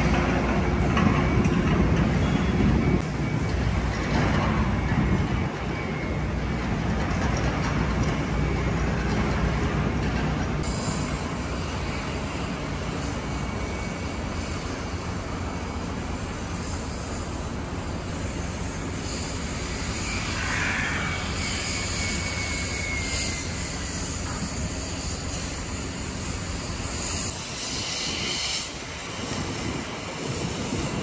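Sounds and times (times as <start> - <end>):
road traffic: 0.0 - 31.0
trains rumbling: 0.0 - 31.0
high-pitched wheel squeal: 10.7 - 31.0.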